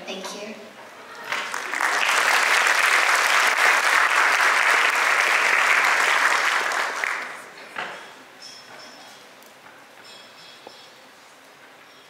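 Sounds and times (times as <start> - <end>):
audience applauding: 1.1 - 7.5.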